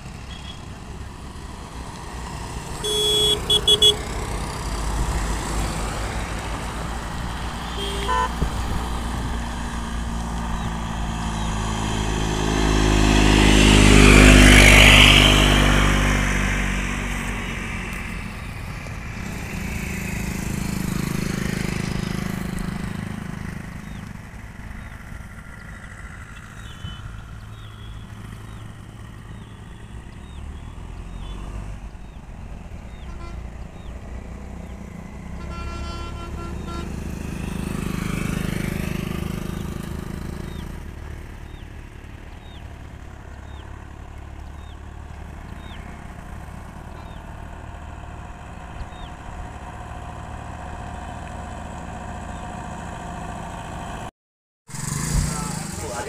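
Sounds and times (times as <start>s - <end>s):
car passing: 0.0s - 54.1s, 54.7s - 56.0s
motorcycles passing: 0.0s - 54.1s, 54.7s - 56.0s
short horn beep: 0.3s - 0.6s, 2.8s - 4.1s, 7.7s - 8.4s, 33.0s - 33.4s, 35.4s - 37.0s.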